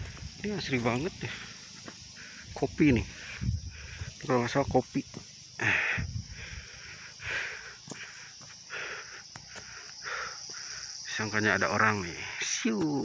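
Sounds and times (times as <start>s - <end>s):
forest insects chirring: 0.0s - 13.0s
person breathing hard: 1.2s - 4.2s, 5.6s - 11.0s.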